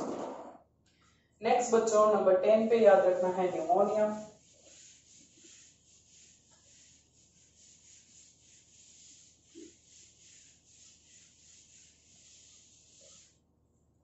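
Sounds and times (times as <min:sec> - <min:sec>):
eraser swishing on whiteboard: 0:03.0 - 0:13.4.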